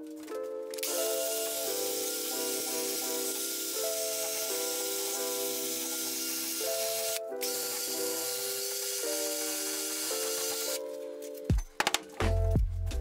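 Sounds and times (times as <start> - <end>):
background music: 0.0 - 13.0
wire brush drill scouring metal: 0.8 - 11.0.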